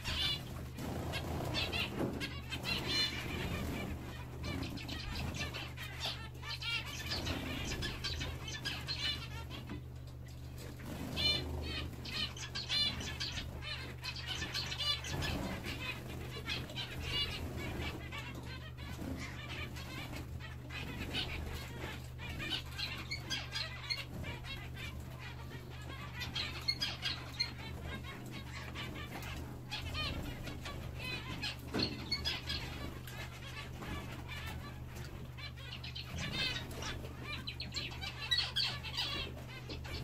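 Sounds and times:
finch calls: 0.0 - 40.0
wing flutters: 0.0 - 40.0.

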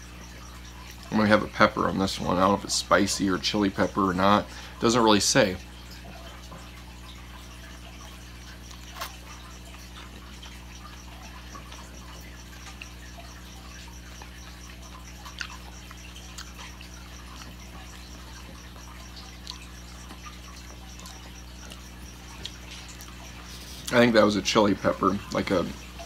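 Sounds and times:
steady low hum: 0.0 - 26.0
wet chewing of noodles: 6.1 - 23.9.

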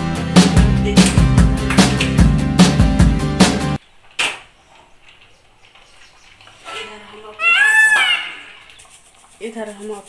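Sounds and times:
background music with steady beat: 0.0 - 3.8.

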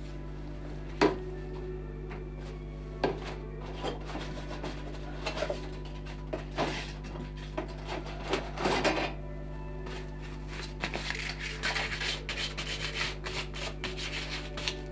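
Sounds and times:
low electrical hum: 0.0 - 14.9
carving tools scraping wood: 11.4 - 14.9.

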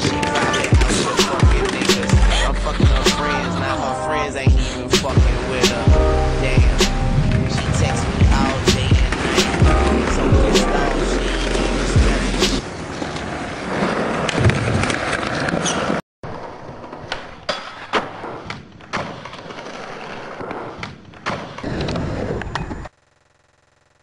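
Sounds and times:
skateboard clacks and knocks: 0.0 - 2.2, 13.0 - 21.7
skateboard wheels rolling on asphalt: 0.0 - 2.2, 7.3 - 10.3, 11.2 - 22.9.

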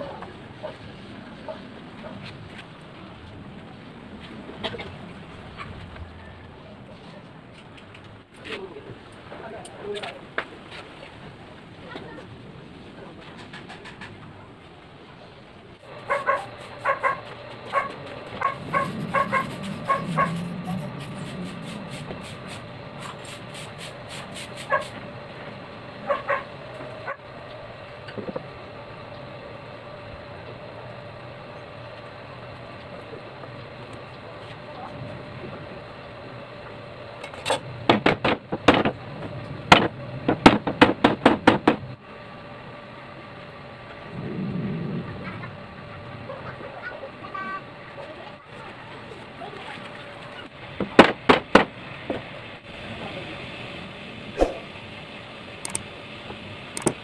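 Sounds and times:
dog yipping: 16.1 - 20.4, 26.1 - 27.2
sharp wooden knocks: 37.9 - 39.0, 39.7 - 41.9, 50.8 - 51.7.

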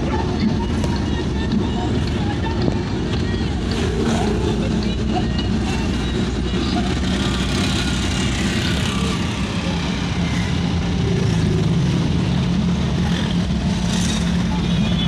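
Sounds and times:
car engine and road noise: 0.0 - 15.0.

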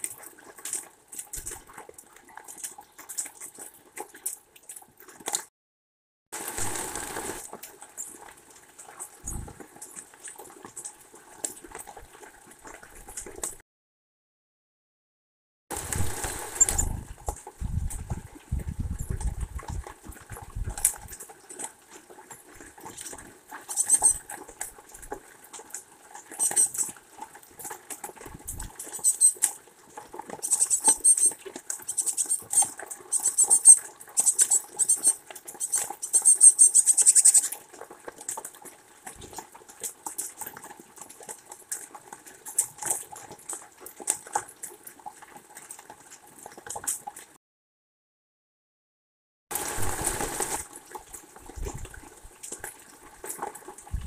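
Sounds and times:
rain dripping and pattering: 0.0 - 5.5, 6.4 - 13.6, 15.7 - 47.4, 49.5 - 54.0
birds pecking at seeds: 6.4 - 11.8, 15.7 - 47.1, 49.5 - 54.0.

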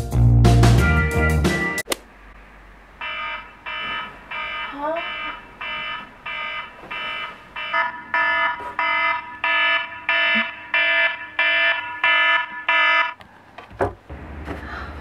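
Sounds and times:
phone alarm beeping: 3.0 - 13.2.

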